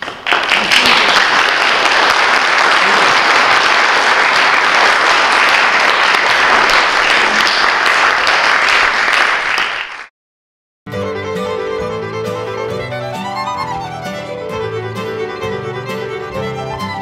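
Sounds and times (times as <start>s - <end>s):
audience applauding: 0.0s - 10.1s
music: 10.9s - 17.0s.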